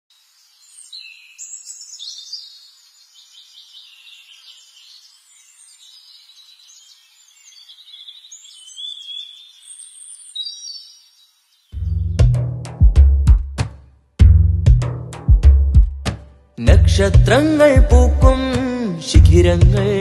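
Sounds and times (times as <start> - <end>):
small birds chirping and whistling: 0.4 - 12.3.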